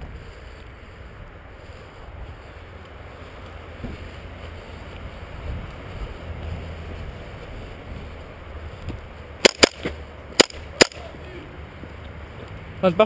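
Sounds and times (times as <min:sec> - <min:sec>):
airsoft gun shots: 0:09.4 - 0:11.1.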